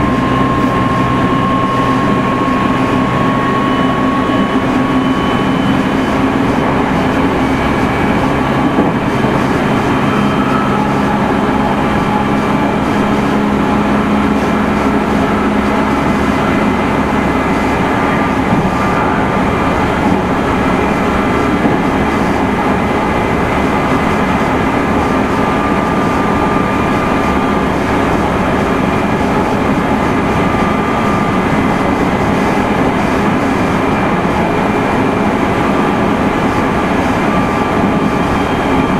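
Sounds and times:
traction motor whine: 0:00.0 - 0:38.9
train wheels rumbling on rail: 0:00.0 - 0:38.9.

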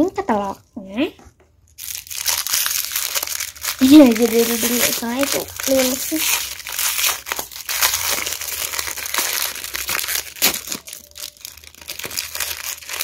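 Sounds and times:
plastic wrapper crackling: 0:01.6 - 0:13.0.

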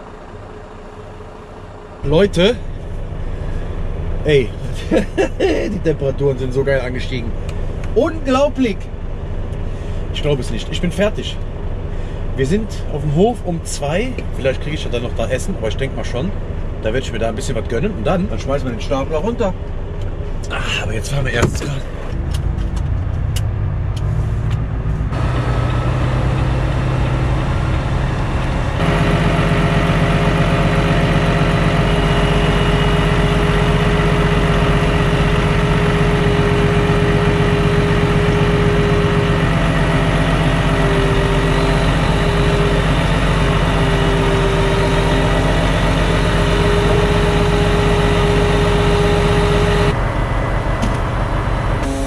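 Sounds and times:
truck engine running: 0:00.0 - 0:52.0
hydraulic crane drone: 0:19.6 - 0:52.0
wavering crane whine: 0:21.9 - 0:52.0.

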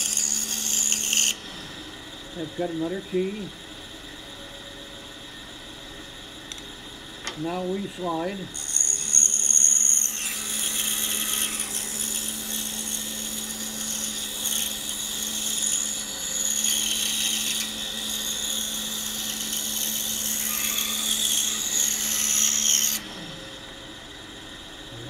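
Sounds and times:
scroll saw cutting wood: 0:00.0 - 0:01.6, 0:08.2 - 0:23.4.

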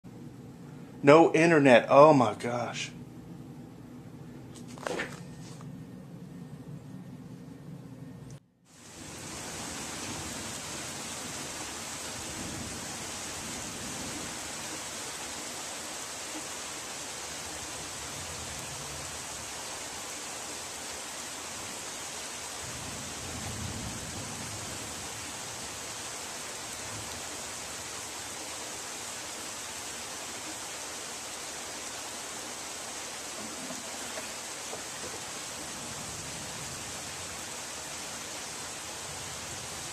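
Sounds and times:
heavy rain pouring: 0:08.7 - 0:39.9.

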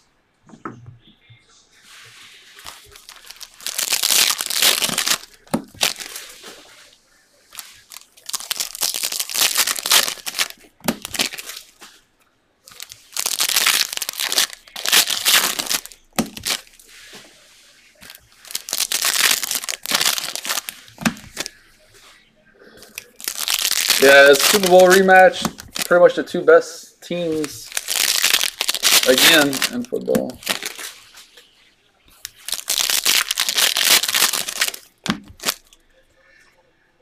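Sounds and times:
wrappers tearing and crinkling: 0:02.6 - 0:06.6, 0:07.5 - 0:11.8, 0:12.7 - 0:16.9, 0:18.0 - 0:21.6, 0:22.8 - 0:26.2, 0:27.2 - 0:31.4, 0:32.1 - 0:35.8.

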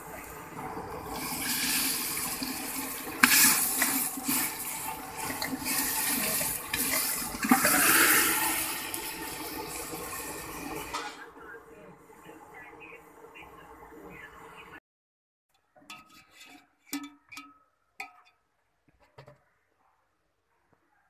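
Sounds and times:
water splashing into a pot: 0:00.0 - 0:11.2.

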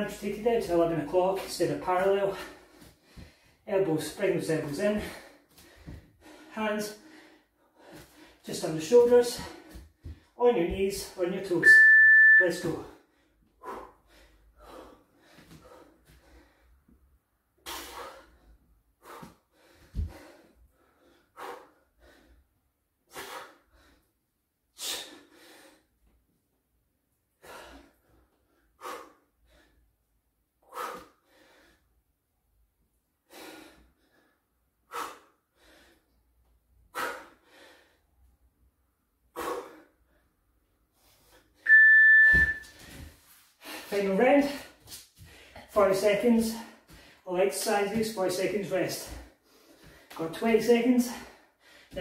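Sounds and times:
interval timer beep: 0:11.6 - 0:12.7, 0:41.7 - 0:42.7
heavy breathing: 0:13.0 - 0:22.5, 0:39.2 - 0:41.6.

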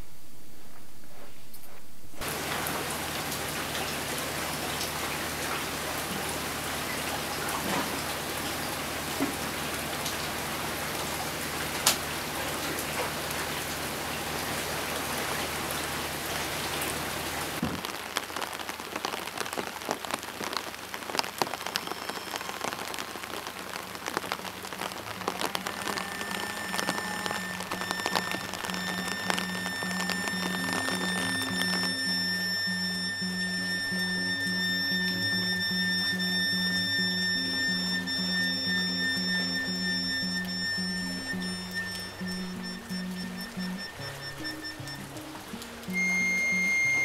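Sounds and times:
rain falling on water: 0:00.0 - 0:47.0
drops splashing on water: 0:02.2 - 0:32.2.

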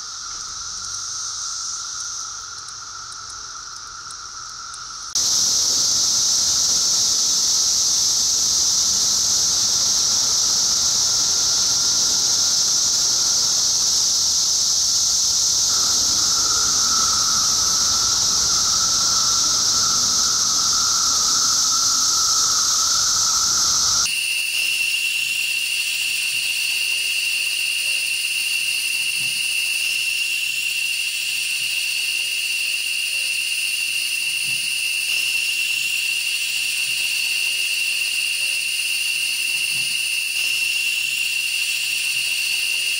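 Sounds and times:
cicadas chorus high-pitched hiss: 0:00.0 - 0:42.9
cicadas shrill calling: 0:00.0 - 0:42.9
low steady drone: 0:10.4 - 0:24.1.

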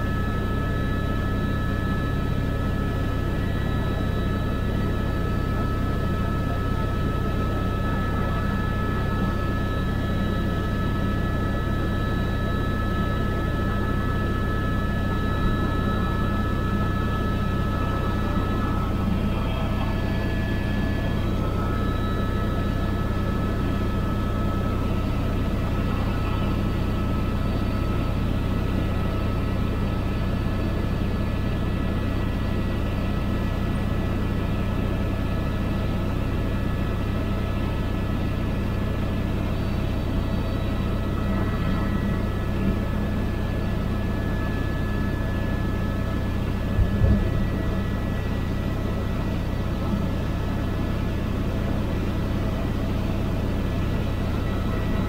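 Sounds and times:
aircraft engine drone: 0:00.0 - 0:55.0.

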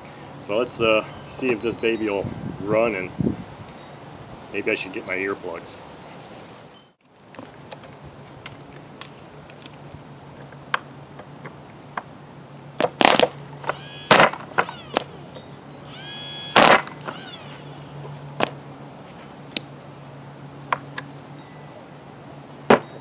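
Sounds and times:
electric starter spinning engine: 0:13.6 - 0:18.2.

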